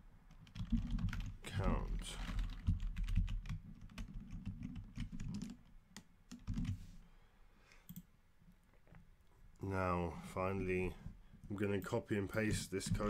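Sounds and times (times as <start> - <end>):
typing on computer keyboard: 0.3 - 6.8.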